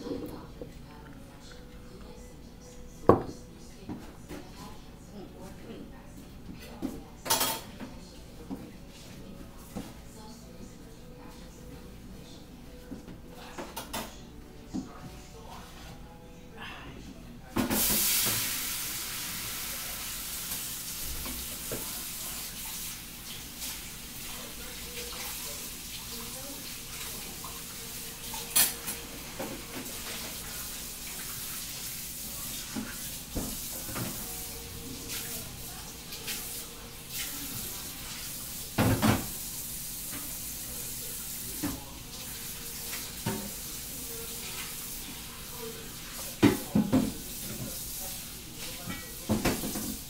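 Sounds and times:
steady cooking hiss: 17.2 - 50.0
food sizzling in frying pan: 17.7 - 50.0.

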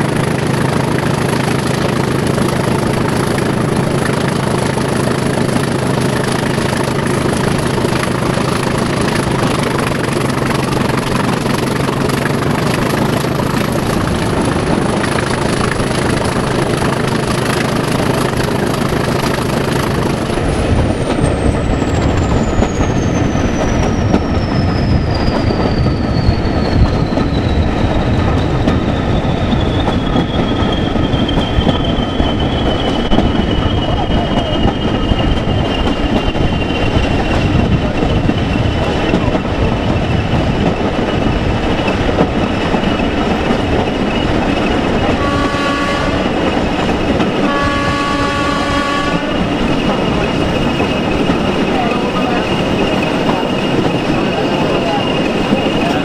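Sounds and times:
locomotive engine and rail noise: 0.0 - 56.0
locomotive horn: 45.1 - 46.3, 47.4 - 49.4.

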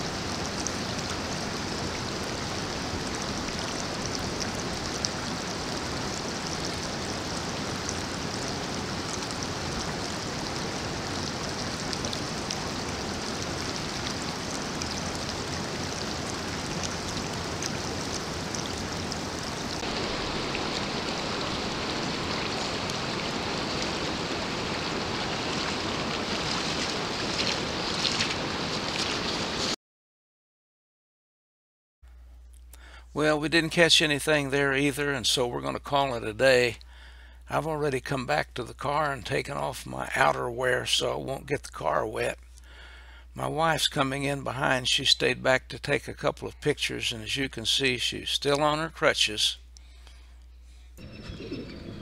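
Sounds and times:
flowing water in a stream: 0.0 - 29.8.

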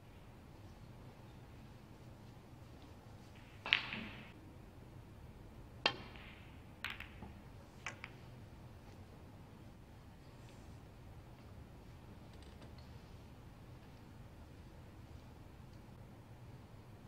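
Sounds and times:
snooker balls clicking: 3.3 - 4.4, 5.8 - 8.4
cue striking ball: 3.4 - 4.3, 5.9 - 8.3.

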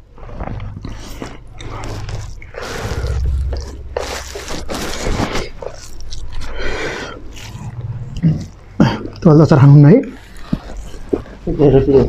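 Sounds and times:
steady low hum: 0.0 - 9.2
people chewing and eating: 0.0 - 12.0.

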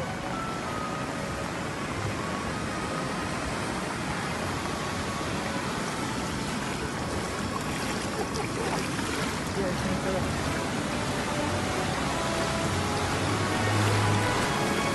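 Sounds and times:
floodwater rushing: 0.0 - 14.9.

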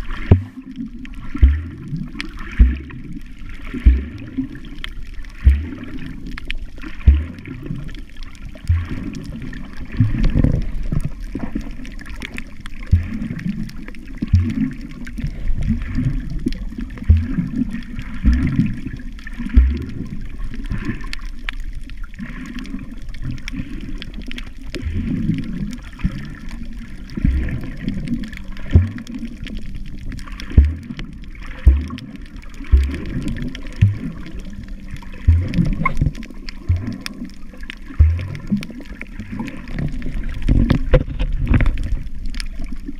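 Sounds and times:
muffled underwater sloshing: 0.0 - 42.9
low thumps: 3.8 - 4.2, 5.4 - 5.8, 28.8 - 29.1, 31.6 - 32.0, 32.7 - 34.2, 35.2 - 37.1, 38.0 - 38.6.

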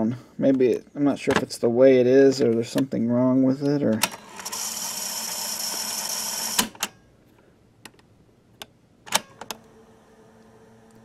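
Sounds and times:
faint motor hum: 2.4 - 11.0
cassette tape rewinding whir: 4.0 - 6.8, 9.2 - 11.0.

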